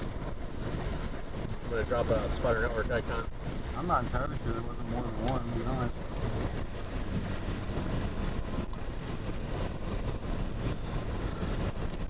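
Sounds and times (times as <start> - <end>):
rain against vehicle: 0.0 - 12.0
tyres on wet pavement: 0.0 - 12.0
wind against vehicle: 0.0 - 12.0.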